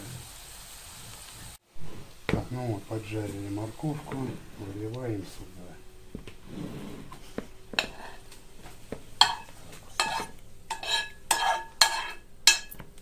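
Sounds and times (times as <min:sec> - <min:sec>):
pan ringing: 0:02.8 - 0:06.5, 0:07.1 - 0:12.9
utensil scraping a frying pan: 0:02.9 - 0:12.9.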